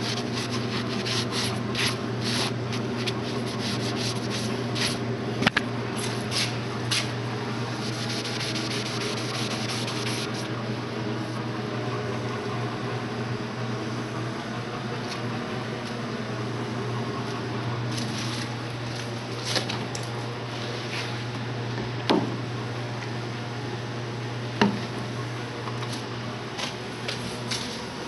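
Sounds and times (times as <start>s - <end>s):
sponge scrubbing metal handle: 0.0s - 5.0s, 7.8s - 10.5s
steady low hum: 0.0s - 28.0s.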